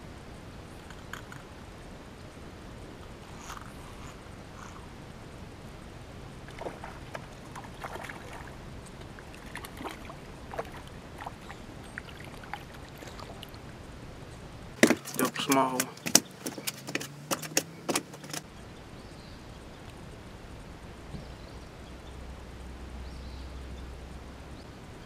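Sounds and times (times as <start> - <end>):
steady low rumble: 0.0 - 14.8
fishing tackle clicks and knocks: 14.8 - 18.5.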